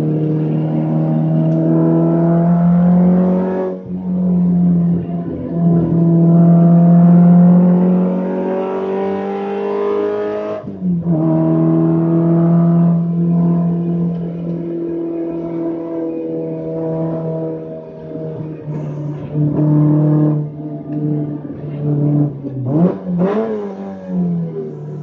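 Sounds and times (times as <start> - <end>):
racing car engine revving: 0.0 - 25.0.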